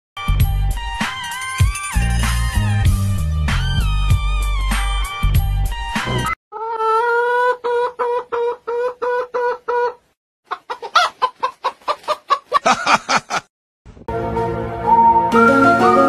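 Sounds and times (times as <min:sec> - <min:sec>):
music: 0:00.2 - 0:06.4, 0:14.1 - 0:16.0
hen-like clucking: 0:06.2 - 0:13.4.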